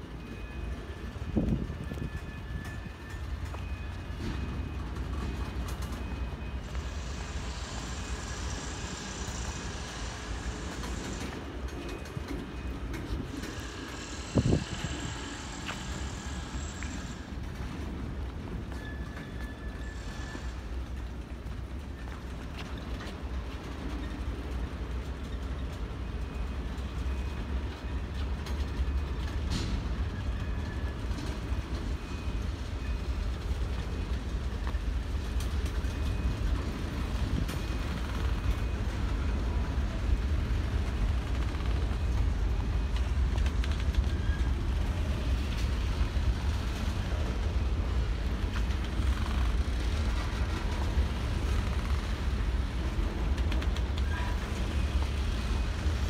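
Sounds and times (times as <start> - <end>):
train clanks: 0.0 - 56.0
train wheels rumbling on rail: 0.0 - 56.0
faint wheel squeals: 18.6 - 21.0, 40.7 - 45.7.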